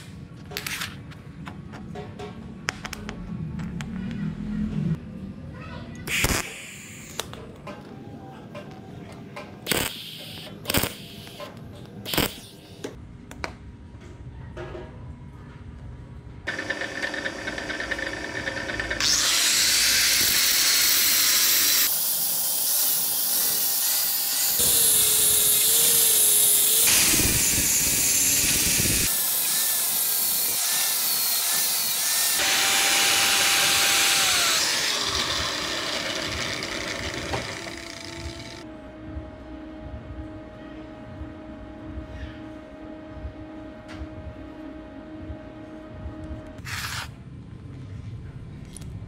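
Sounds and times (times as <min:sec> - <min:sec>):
drill press spinning: 0:16.5 - 0:38.6
grinder grinding metal: 0:16.5 - 0:38.6.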